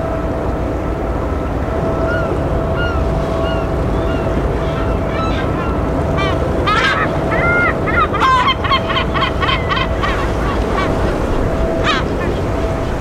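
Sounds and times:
background rush: 0.0 - 13.0
faint steady hum: 0.0 - 13.0
bird calling: 1.8 - 13.0.

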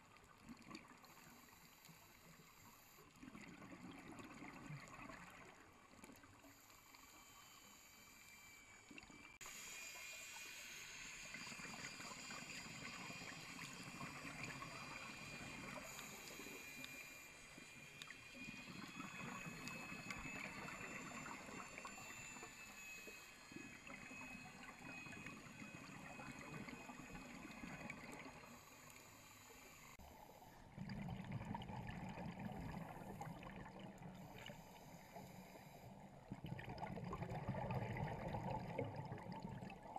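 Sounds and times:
underwater water hiss: 1.0 - 3.6, 9.4 - 30.8, 34.2 - 36.1.

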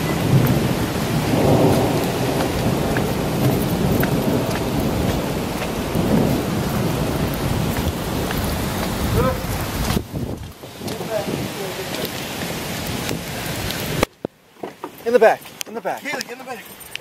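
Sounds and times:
thunder rumbling: 0.0 - 14.0
heavy rain pouring: 0.0 - 14.2.

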